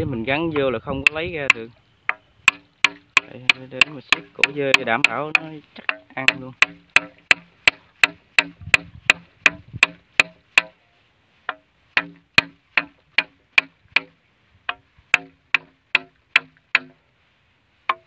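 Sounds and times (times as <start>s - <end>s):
hammer tapping: 0.5s - 10.8s, 11.5s - 17.0s.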